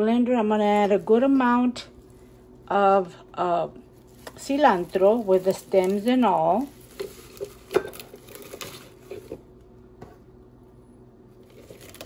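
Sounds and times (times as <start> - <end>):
herb leaves rustling: 0.6 - 9.4.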